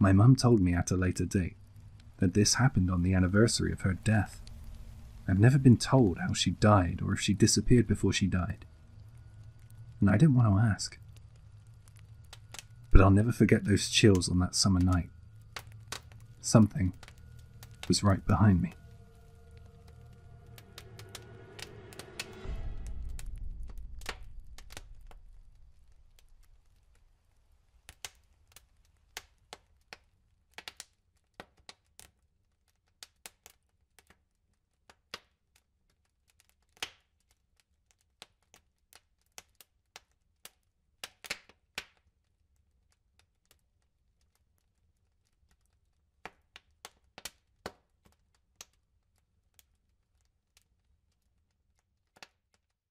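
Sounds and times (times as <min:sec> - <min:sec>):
sharp crackles and clicks: 0:00.1 - 0:52.8
low rumble: 0:01.3 - 0:27.5.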